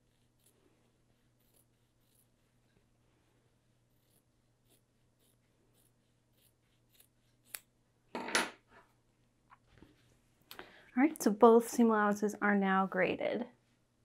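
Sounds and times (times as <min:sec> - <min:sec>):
scissors snipping fabric: 0:04.0 - 0:07.7.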